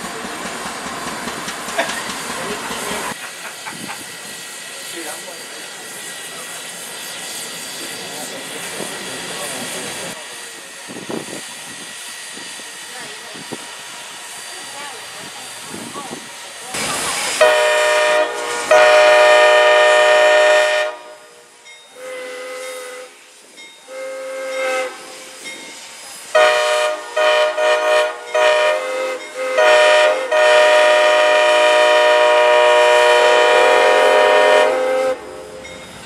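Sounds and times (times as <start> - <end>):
steam chime whistle blasts: 17.4 - 23.2, 23.8 - 36.0.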